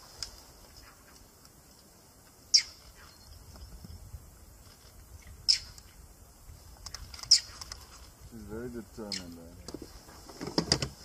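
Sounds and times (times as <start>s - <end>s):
high-pitched animal alarm chirps: 2.5s - 3.4s, 5.4s - 5.8s.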